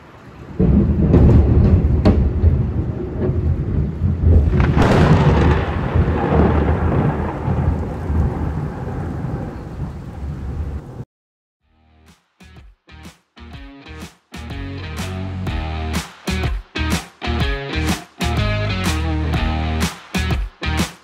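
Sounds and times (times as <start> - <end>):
rolling thunder: 0.5 - 11.0
thunder cracks: 0.5 - 11.0.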